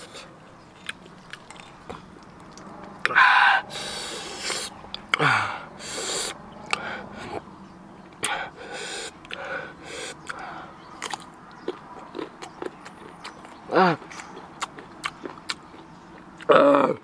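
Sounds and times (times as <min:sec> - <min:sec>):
man drawing hissing breaths: 0:03.1 - 0:07.4, 0:08.2 - 0:10.8
lip smacks and clicks: 0:04.2 - 0:05.2, 0:09.1 - 0:09.5, 0:10.1 - 0:10.4, 0:11.0 - 0:16.5
man grunting: 0:16.5 - 0:17.0.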